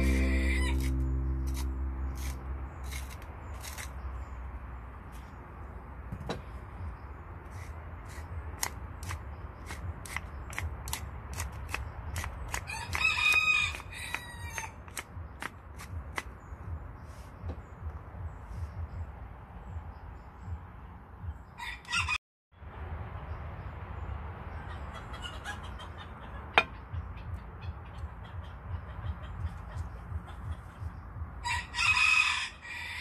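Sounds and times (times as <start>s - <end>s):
rooster crowing: 31.4s - 33.0s.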